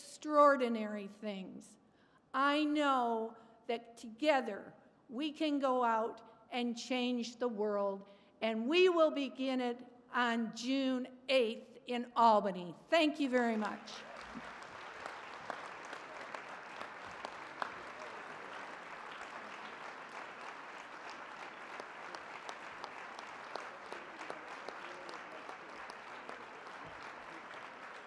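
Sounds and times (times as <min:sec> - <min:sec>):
audience applauding: 0:13.6 - 0:28.0.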